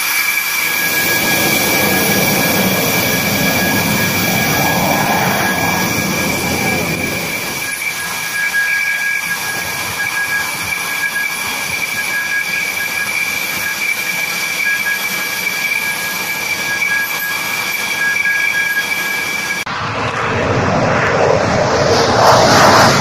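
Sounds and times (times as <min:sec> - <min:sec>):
jet engines whining: 0:00.0 - 0:23.0.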